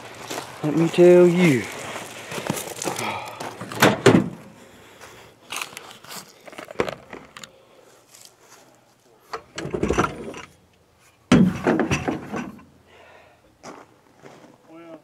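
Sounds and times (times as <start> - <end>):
bumping: 11.3 - 12.6.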